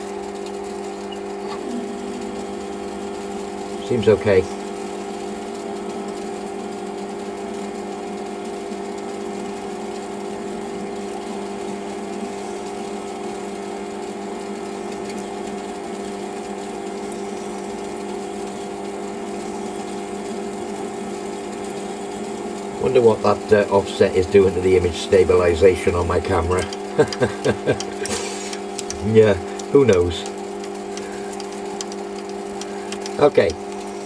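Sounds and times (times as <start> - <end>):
metal lathe humming: 0.0 - 34.0.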